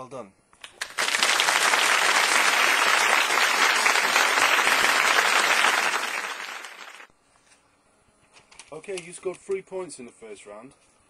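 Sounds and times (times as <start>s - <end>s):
audience applause: 0.6s - 7.1s.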